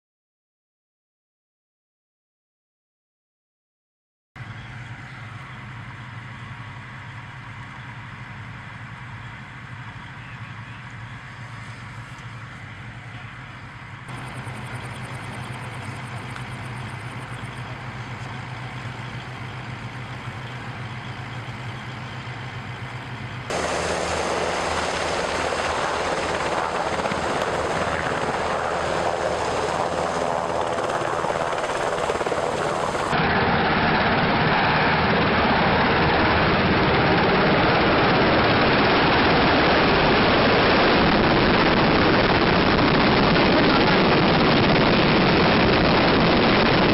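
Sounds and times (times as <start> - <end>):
helicopter engines and rotors: 4.4 - 46.9
rotor wash blasting: 14.1 - 46.9.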